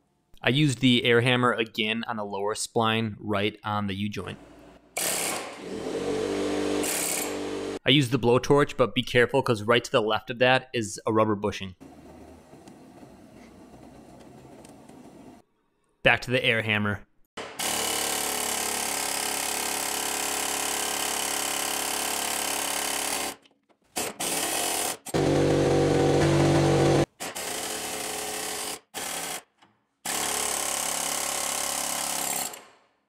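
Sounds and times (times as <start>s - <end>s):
pneumatic air hammer rapid-firing: 5.0s - 7.7s.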